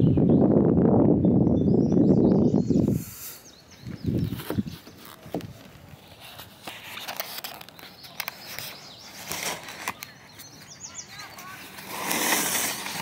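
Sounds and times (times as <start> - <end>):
outdoor lakeshore ambience: 0.0 - 13.0
faint bird chirps: 1.2 - 5.2, 7.8 - 11.9.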